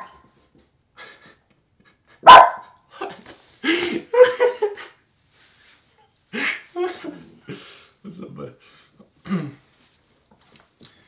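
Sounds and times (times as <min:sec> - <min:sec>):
dog barking: 0:02.2 - 0:02.8.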